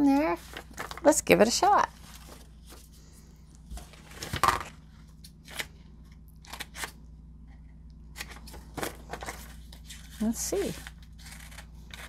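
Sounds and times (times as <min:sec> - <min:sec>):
paper handling: 0:00.0 - 0:05.8, 0:08.1 - 0:12.0.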